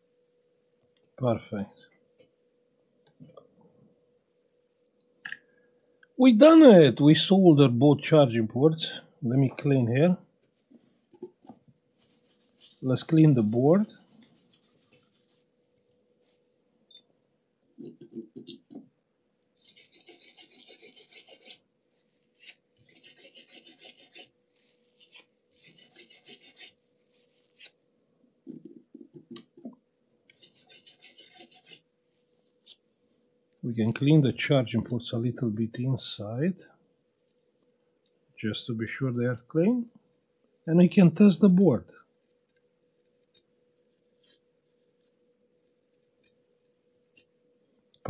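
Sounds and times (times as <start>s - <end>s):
faint steady hum: 0.0s - 48.0s
rapid rubbing strokes: 12.0s - 16.5s, 19.6s - 27.7s, 30.3s - 32.3s
tool scraping in a port: 19.6s - 21.6s, 22.4s - 24.4s, 25.0s - 26.8s, 30.3s - 31.9s.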